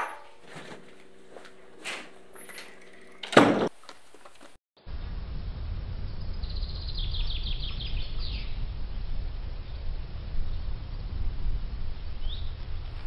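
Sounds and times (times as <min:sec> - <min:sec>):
low outdoor rumble: 0:00.0 - 0:13.0
bird chirping: 0:06.1 - 0:08.6, 0:12.2 - 0:12.6.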